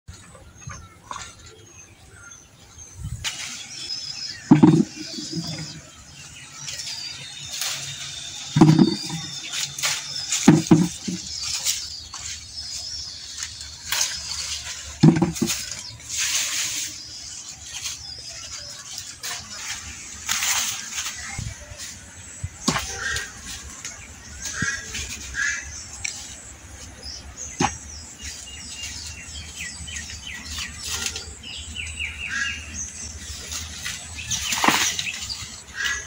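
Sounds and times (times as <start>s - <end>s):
high chirping: 0.3s - 36.0s
leaves rustling: 2.9s - 36.0s
lemons knocking into plastic bucket: 4.5s - 5.7s, 8.6s - 9.3s, 10.4s - 11.3s, 15.0s - 15.8s.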